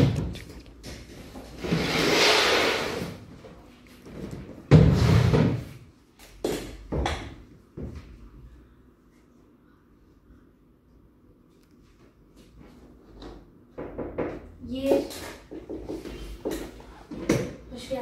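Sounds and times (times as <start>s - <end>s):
plastic stool scraping on floor: 0.0s - 3.3s, 4.2s - 5.8s.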